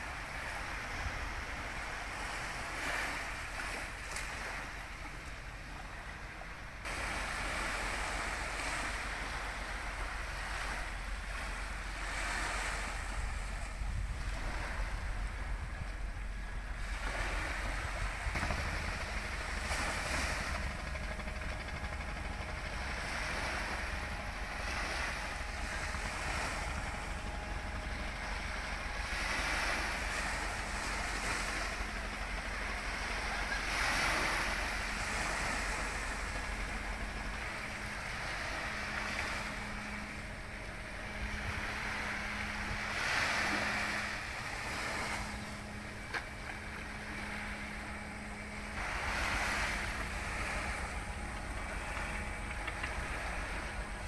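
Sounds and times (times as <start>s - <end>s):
ferry engine low hum: 0.0s - 54.0s
sea water washing against pier: 0.0s - 54.0s
wind noise: 7.2s - 45.9s.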